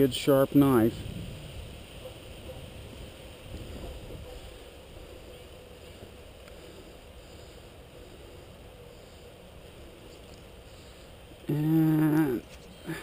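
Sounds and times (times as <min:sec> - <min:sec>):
wind rumble on microphone: 0:00.6 - 0:06.2
faint steady hum: 0:03.0 - 0:13.0.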